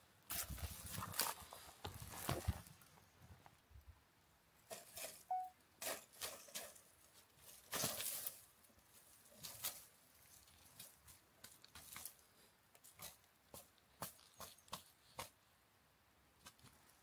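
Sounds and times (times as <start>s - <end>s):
dry leaves and twigs rustling: 0.3s - 3.6s, 4.6s - 15.4s
faint chirp: 5.3s - 5.6s.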